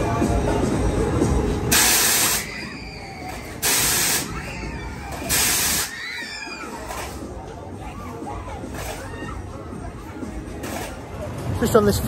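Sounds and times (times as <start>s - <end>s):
pneumatic air hissing bursts: 1.7s - 4.5s, 5.1s - 6.1s.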